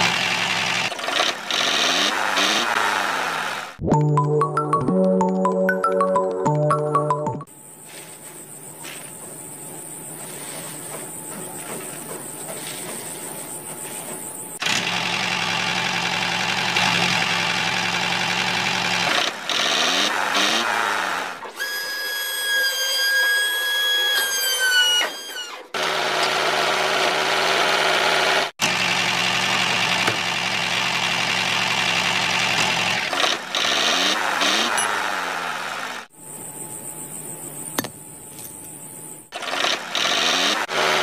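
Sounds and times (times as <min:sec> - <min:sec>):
crickets chirping: 0:07.5 - 0:14.6, 0:36.1 - 0:39.3
small motor running: 0:39.3 - 0:41.0.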